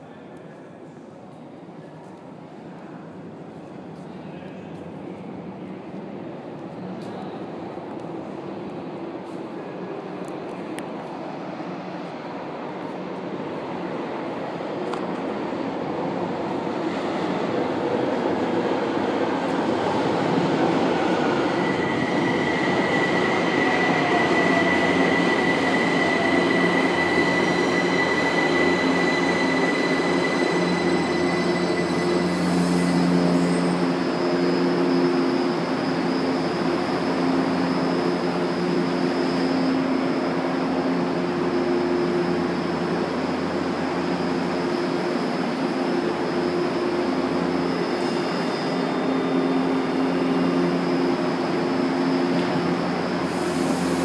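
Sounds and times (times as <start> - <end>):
falling whine of train: 0.0 - 54.0
train braking squeal: 0.6 - 1.6, 19.1 - 54.0
standing train humming: 2.5 - 54.0
short air hiss: 53.2 - 54.0.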